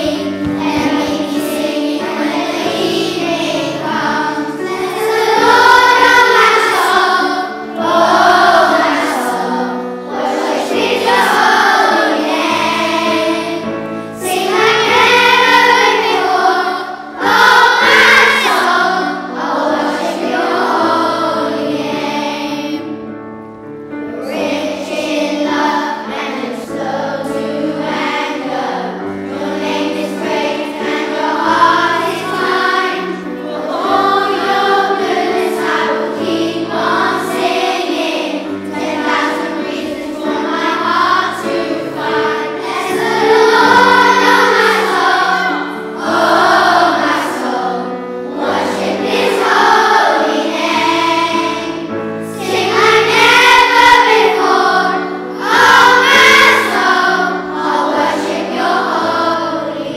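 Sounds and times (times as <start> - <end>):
children's choir singing: 0.0 - 59.9.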